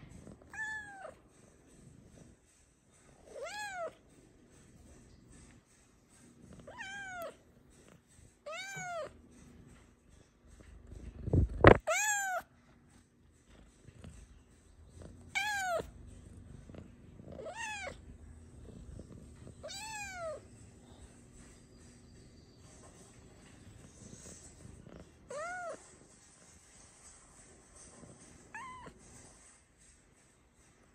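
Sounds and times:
cat meowing: 0:00.5 - 0:01.2, 0:03.3 - 0:04.0, 0:06.7 - 0:07.4, 0:08.4 - 0:09.2, 0:11.7 - 0:12.5, 0:15.3 - 0:15.9, 0:17.3 - 0:18.0, 0:19.6 - 0:20.5, 0:25.3 - 0:25.8, 0:28.5 - 0:29.0.

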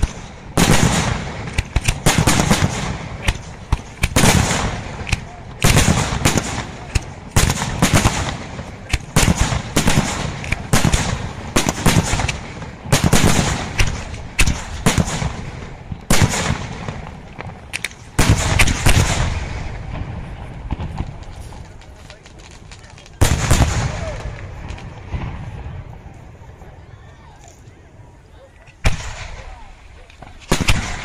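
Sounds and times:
firework shells bursting: 0:00.0 - 0:19.7
firework crackling: 0:00.0 - 0:26.6, 0:28.7 - 0:31.0.

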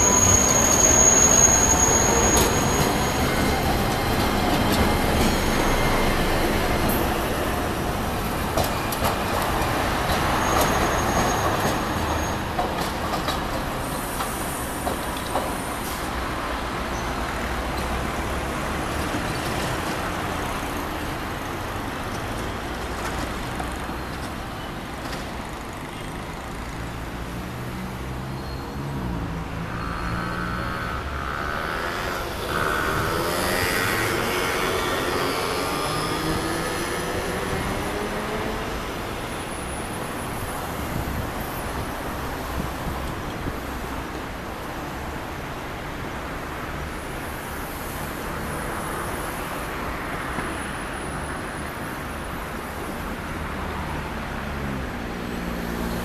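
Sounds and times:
cars and buses passing: 0:00.0 - 0:56.0.

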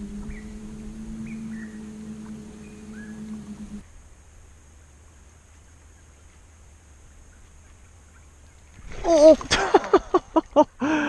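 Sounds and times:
faint low rumble: 0:00.0 - 0:08.1.

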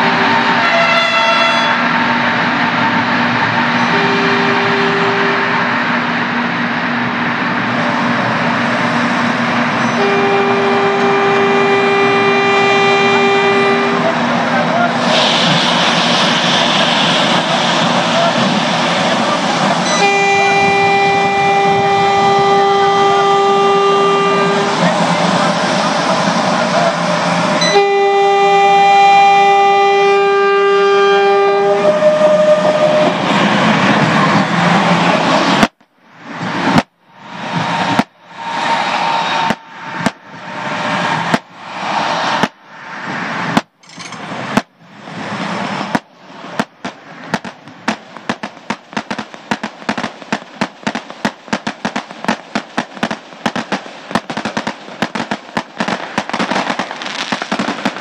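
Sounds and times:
train horn chord: 0:00.0 - 0:02.1, 0:03.6 - 0:05.8, 0:09.8 - 0:14.2, 0:19.8 - 0:24.8, 0:27.6 - 0:33.2
fireworks bursts: 0:09.2 - 0:28.8, 0:32.7 - 0:42.7, 0:43.4 - 0:44.8, 0:45.7 - 0:58.0
firecracker crackling: 0:09.6 - 0:27.5, 0:34.6 - 0:36.0, 0:36.6 - 0:38.4, 0:39.4 - 0:41.7, 0:43.5 - 0:43.8, 0:44.5 - 0:44.8, 0:45.8 - 0:58.0.

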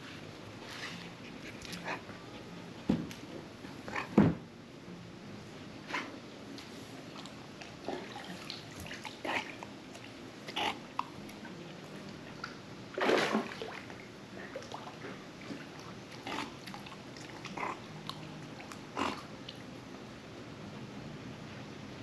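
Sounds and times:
dog noises: 0:00.8 - 0:04.4, 0:10.4 - 0:11.1, 0:16.1 - 0:19.3.

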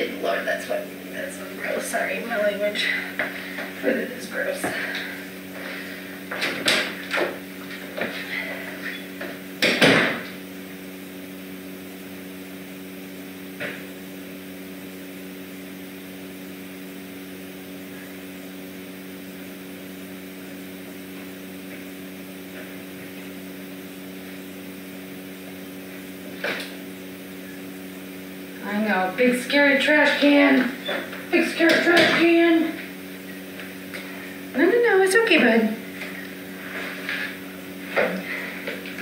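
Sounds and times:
loud knock: 0:09.6 - 0:10.3.

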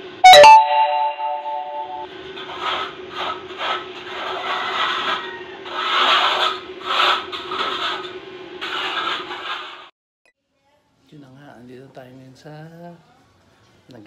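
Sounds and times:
paint roller rasping on cement wall: 0:02.5 - 0:09.9.

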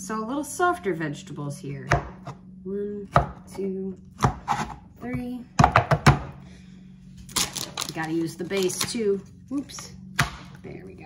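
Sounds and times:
plastic cup knocking on board: 0:05.6 - 0:06.3.

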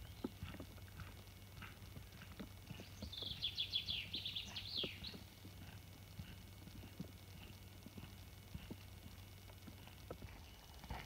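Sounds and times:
footsteps on dirt: 0:00.0 - 0:11.0
songbird trilling: 0:02.8 - 0:05.3.

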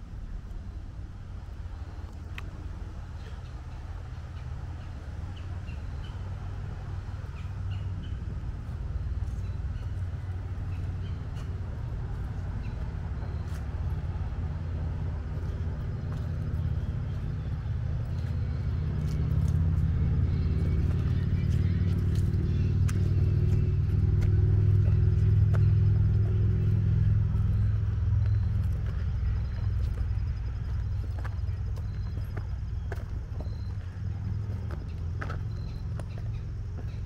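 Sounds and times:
low rumble: 0:00.0 - 0:37.0
faint bird chirps: 0:27.4 - 0:37.0.

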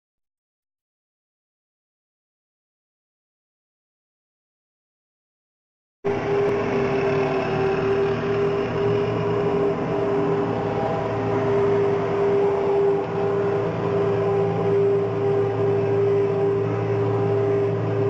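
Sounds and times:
constant hum tone: 0:06.1 - 0:18.0
diesel engines droning: 0:06.1 - 0:18.0.

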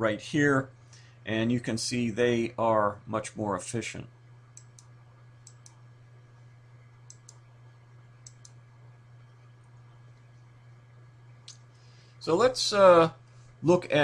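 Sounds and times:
faint low hum: 0:00.0 - 0:14.0
computer mouse clicking: 0:04.6 - 0:05.8, 0:07.1 - 0:07.4, 0:08.2 - 0:08.6.

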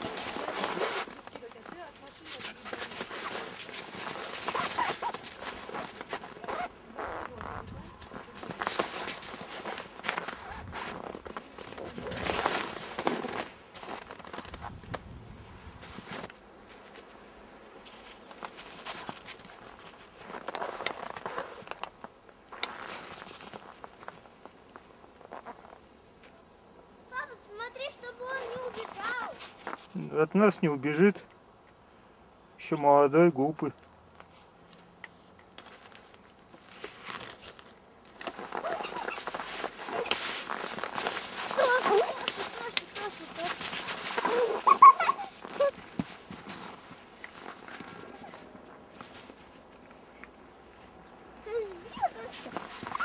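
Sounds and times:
footsteps crunching through snow: 0:00.0 - 0:17.2, 0:17.8 - 0:21.8, 0:22.6 - 0:25.8, 0:35.6 - 0:49.8, 0:50.8 - 0:53.0.

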